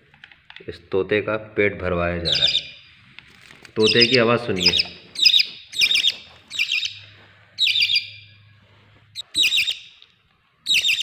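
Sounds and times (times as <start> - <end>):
parrot chick squawking: 2.3 - 2.8, 3.8 - 8.3, 9.2 - 10.0, 10.6 - 11.0.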